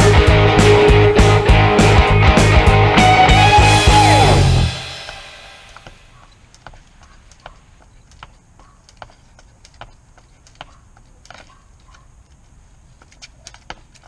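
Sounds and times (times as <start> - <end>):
jump rope tapping on concrete: 5.8 - 12.4, 13.0 - 14.0.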